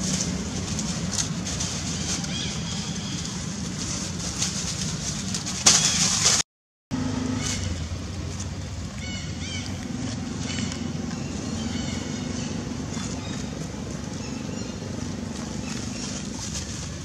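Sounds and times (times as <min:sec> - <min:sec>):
low background hum: 0:00.0 - 0:17.0
high animal calls: 0:08.9 - 0:16.8.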